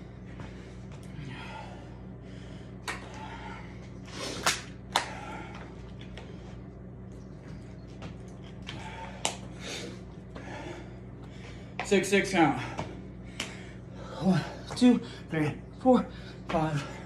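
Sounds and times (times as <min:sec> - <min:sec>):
man breathing hard: 0:00.0 - 0:06.8, 0:08.6 - 0:11.8, 0:12.4 - 0:15.3, 0:16.0 - 0:17.0
steady low hum: 0:00.0 - 0:17.0.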